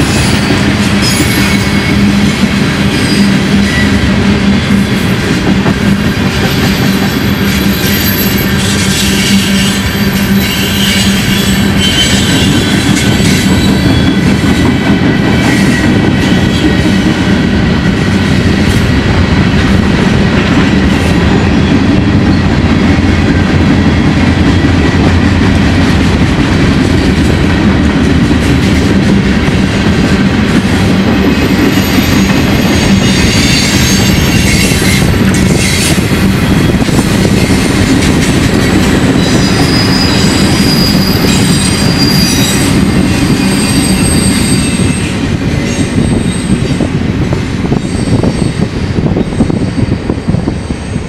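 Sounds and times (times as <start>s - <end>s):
high wheel squeal: 6.5s - 14.3s, 31.7s - 36.9s, 39.1s - 45.1s.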